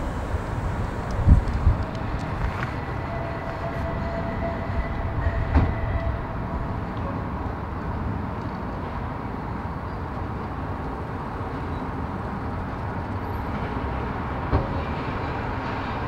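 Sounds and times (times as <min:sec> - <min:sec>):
faint steady hum: 0:00.0 - 0:02.9
train rumbling: 0:00.0 - 0:09.7, 0:12.4 - 0:16.0.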